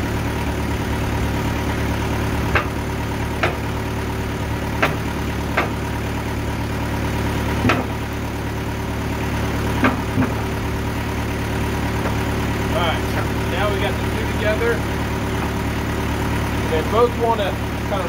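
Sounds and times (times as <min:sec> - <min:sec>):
sawmill engine idling: 0:00.0 - 0:18.0
logs knocking and clanking: 0:02.5 - 0:02.8, 0:03.4 - 0:03.7, 0:04.8 - 0:05.8, 0:07.6 - 0:08.0, 0:09.8 - 0:10.6, 0:12.0 - 0:12.3, 0:13.0 - 0:13.4.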